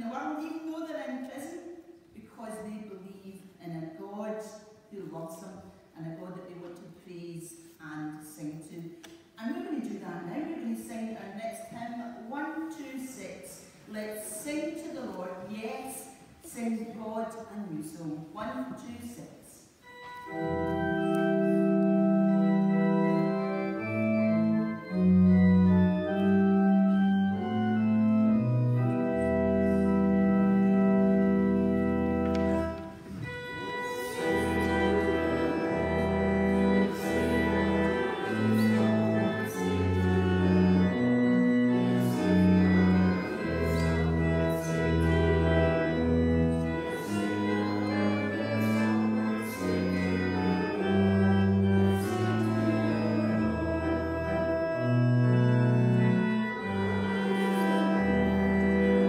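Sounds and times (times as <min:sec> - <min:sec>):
church organ playing a hymn: 0:19.7 - 0:59.0.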